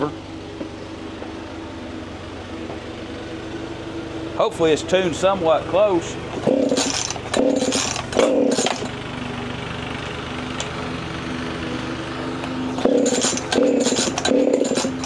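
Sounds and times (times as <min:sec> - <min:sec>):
chainsaw recoil starter pulls: 0:06.3 - 0:09.0, 0:12.8 - 0:15.0
chainsaw engine turning over: 0:06.3 - 0:10.9, 0:11.6 - 0:15.0.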